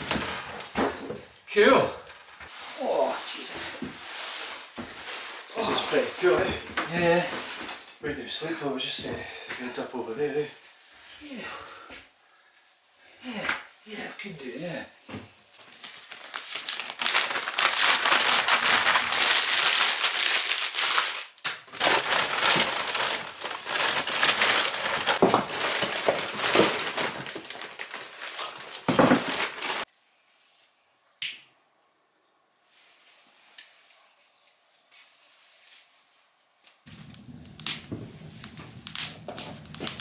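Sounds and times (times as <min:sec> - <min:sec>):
newspaper crumpling: 0:05.2 - 0:07.8, 0:15.6 - 0:29.9, 0:36.9 - 0:40.0.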